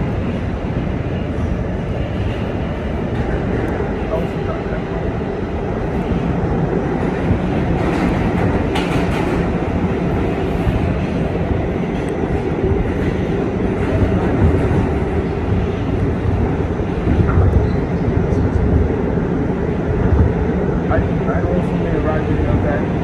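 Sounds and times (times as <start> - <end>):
subway car wheels rumbling: 0.0 - 23.0.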